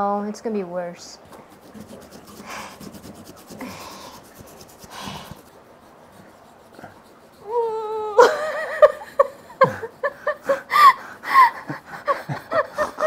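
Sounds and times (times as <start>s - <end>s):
person laughing: 7.5s - 13.0s.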